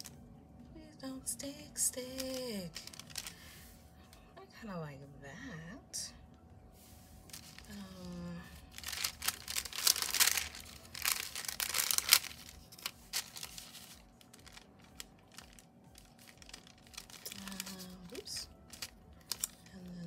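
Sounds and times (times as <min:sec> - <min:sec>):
light paper rustles: 0:02.0 - 0:03.6, 0:06.8 - 0:19.7
thin paper sheet crinkling: 0:02.0 - 0:03.6, 0:07.3 - 0:19.7.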